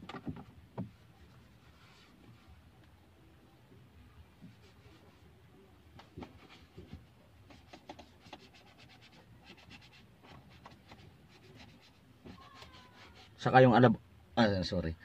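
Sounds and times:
sponge rubbing plastic dashboard: 6.0s - 13.5s.

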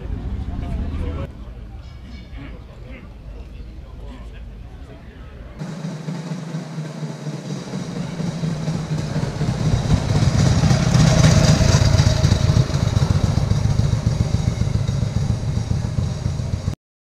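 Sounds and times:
motorcycle engine passing by: 5.6s - 16.8s.

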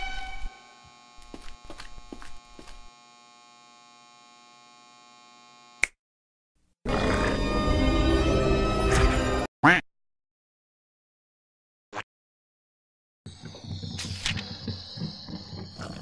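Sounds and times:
music: 0.0s - 0.9s, 6.9s - 9.5s.

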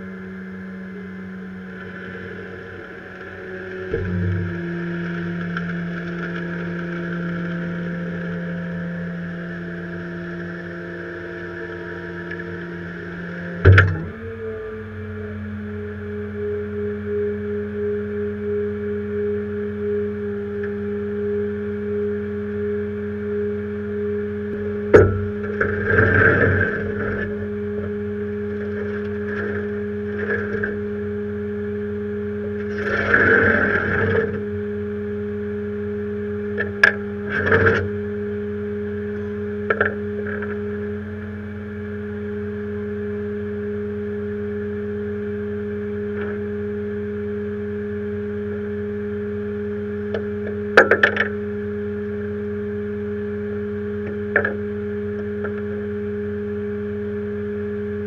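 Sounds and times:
truck engine humming: 0.0s - 58.0s
metal scraping: 24.9s - 27.9s.

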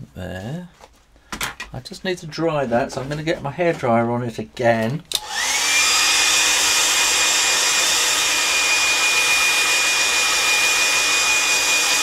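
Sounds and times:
hairdryer running: 5.1s - 12.0s.

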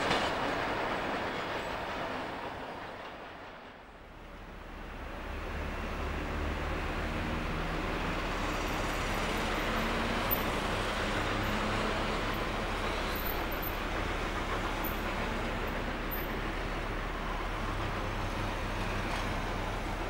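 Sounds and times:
steam locomotive exhaust rush: 0.0s - 20.0s.

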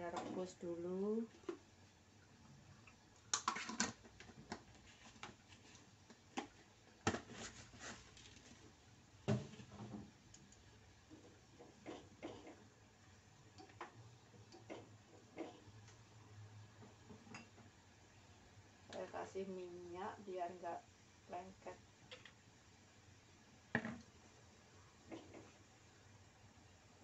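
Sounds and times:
faint steady background noise: 0.0s - 27.0s
kitchen things clicking and knocking: 3.3s - 4.7s.

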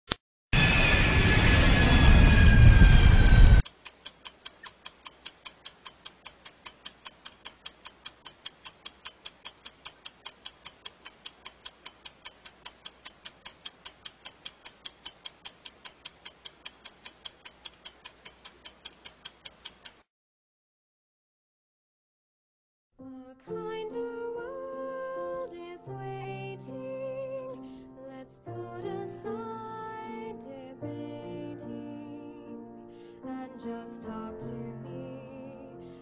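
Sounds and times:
wristwatch ticking: 2.2s - 20.1s.

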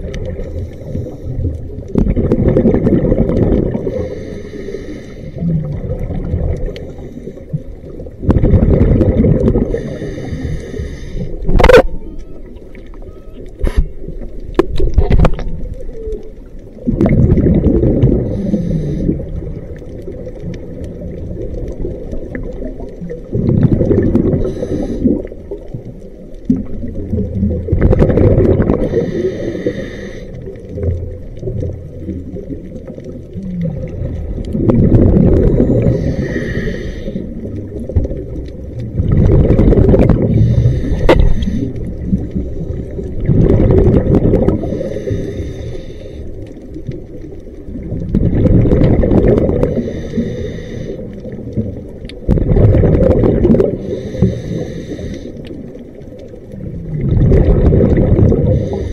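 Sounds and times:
diver breathing through regulator: 0.3s - 1.6s, 3.7s - 5.7s, 6.8s - 7.7s, 9.6s - 11.6s, 18.1s - 19.4s, 24.2s - 25.6s, 28.7s - 30.6s, 35.2s - 37.6s, 40.0s - 43.0s, 44.0s - 46.6s, 49.4s - 51.4s, 53.6s - 55.7s, 58.3s - 58.9s
exhaust bubbles rushing: 1.9s - 4.0s, 5.4s - 6.8s, 8.2s - 9.8s, 16.8s - 18.4s, 19.0s - 24.5s, 26.5s - 28.9s, 30.8s - 36.0s, 37.4s - 44.8s, 47.7s - 49.8s, 51.3s - 53.8s, 56.6s - 58.5s.

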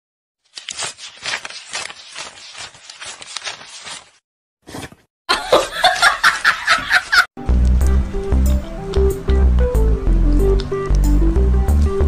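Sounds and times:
banknotes rustling: 0.4s - 4.2s.

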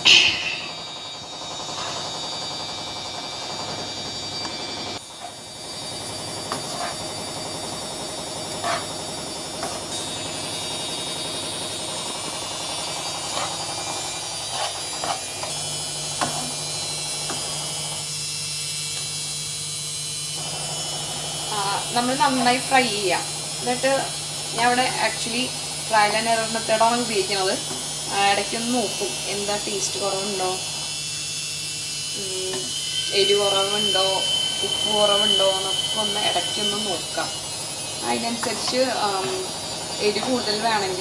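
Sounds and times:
constant hum: 0.0s - 2.4s
rice sizzling in a pan: 4.4s - 18.2s
wooden spatula scraping a pan: 6.5s - 7.0s, 8.6s - 8.9s.

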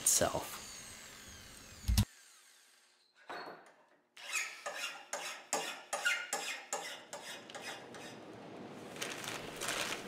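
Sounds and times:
hand file rasping on steel: 4.2s - 8.2s.

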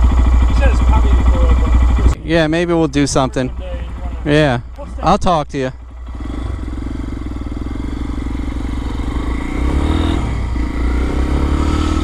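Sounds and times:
motorcycle engine pulling away: 5.9s - 12.0s.

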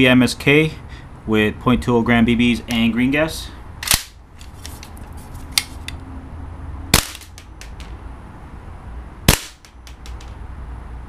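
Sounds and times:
airsoft rifle shots: 3.8s - 4.2s, 6.9s - 8.0s, 9.3s - 10.4s.

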